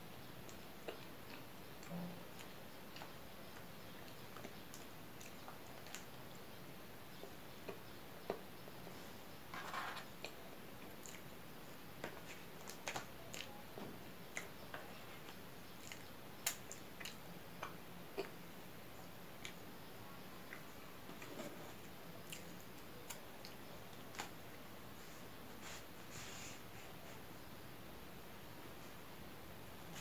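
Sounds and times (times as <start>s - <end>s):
faint hiss: 14.3s - 30.0s.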